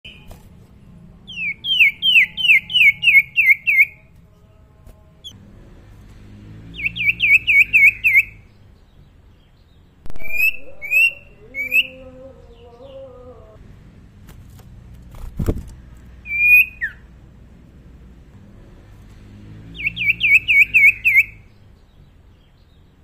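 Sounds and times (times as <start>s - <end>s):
bird whistling song: 1.3s - 4.0s, 6.7s - 8.6s, 10.1s - 12.7s, 16.2s - 17.1s, 19.7s - 22.8s.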